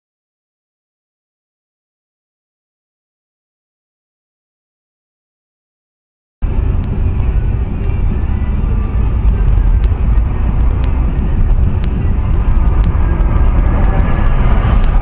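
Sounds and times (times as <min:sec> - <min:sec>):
car engine and road noise: 0:06.4 - 0:15.0.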